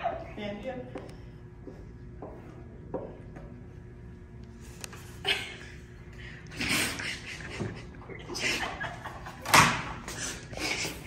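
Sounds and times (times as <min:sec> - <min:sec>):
man and woman laughing: 0:05.2 - 0:05.9, 0:06.5 - 0:11.0.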